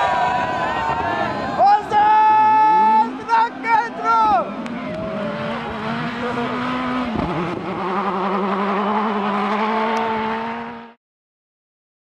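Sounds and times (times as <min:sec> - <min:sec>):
car engine at high revs: 0:04.3 - 0:11.0.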